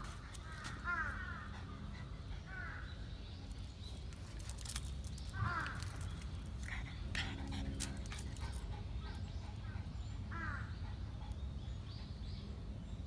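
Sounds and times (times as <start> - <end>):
crow cawing: 0.8 - 1.5.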